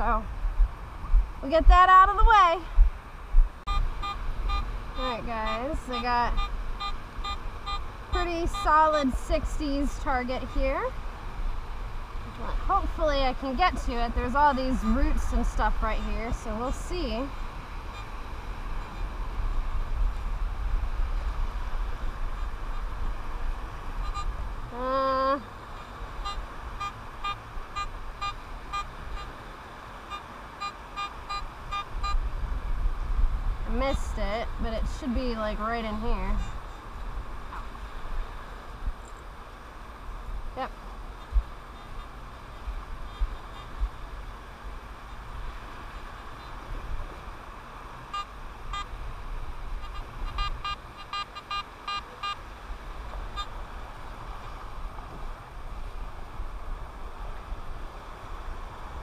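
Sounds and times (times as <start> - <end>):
wind on microphone: 0.0 - 59.0
pinpointer beeping in short pulses: 3.7 - 4.7, 6.0 - 7.9
metal detector beeping: 3.7 - 9.0, 17.9 - 18.1, 24.0 - 24.4, 26.2 - 29.4, 30.1 - 32.2, 48.1 - 48.9, 49.8 - 52.4, 53.3 - 53.6.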